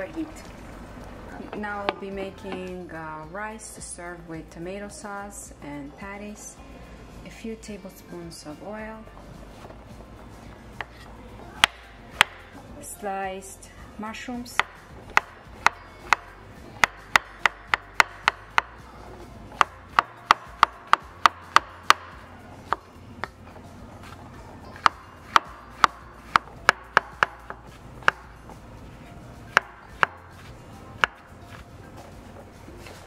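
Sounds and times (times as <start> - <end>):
knife chopping on wooden board: 11.6 - 12.4, 14.6 - 18.8, 19.6 - 22.9, 24.8 - 28.3, 29.5 - 30.4, 31.0 - 31.2.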